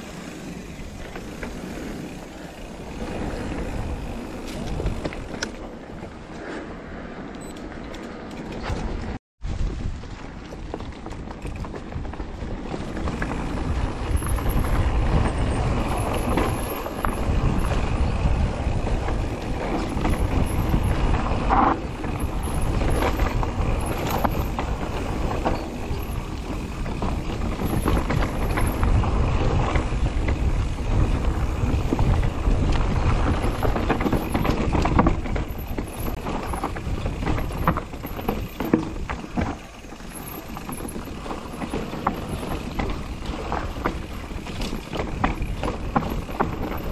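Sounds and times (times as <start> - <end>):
bike knocking and clattering: 0.0 - 6.3, 7.7 - 46.9
tyres on dirt: 0.0 - 46.9
wind rumbling on microphone: 0.0 - 46.9.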